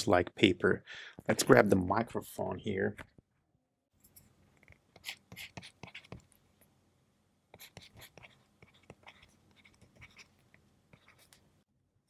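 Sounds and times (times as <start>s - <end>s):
pen nib scratching on screen: 4.6s - 6.4s, 7.5s - 11.5s.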